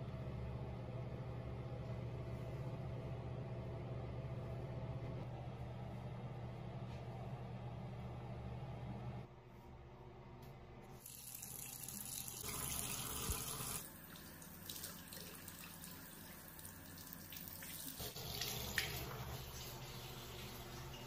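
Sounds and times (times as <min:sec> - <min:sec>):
tap water splashing over hands: 0:18.3 - 0:19.2.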